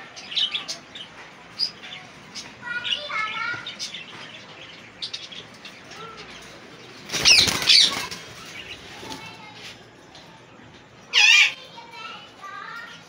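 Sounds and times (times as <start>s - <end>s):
parakeet wings flapping: 7.0s - 9.4s
shrill parakeet calls: 11.1s - 11.6s.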